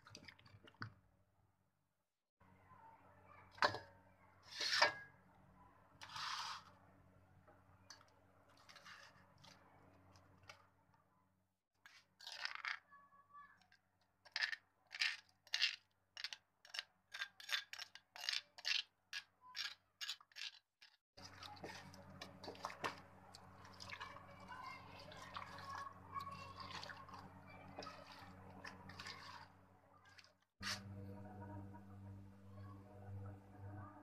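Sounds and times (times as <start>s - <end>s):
paste scraping from stone mortar: 6.0s - 6.7s, 27.8s - 29.5s.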